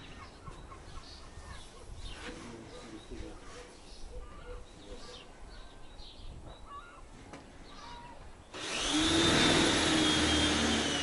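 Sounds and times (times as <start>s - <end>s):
people speaking: 2.2s - 3.8s
electric motor whine: 8.5s - 11.0s.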